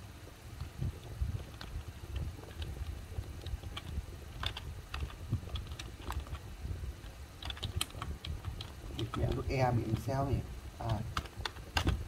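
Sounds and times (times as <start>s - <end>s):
typing on computer keyboard: 1.4s - 6.4s, 7.4s - 10.1s, 10.8s - 12.0s.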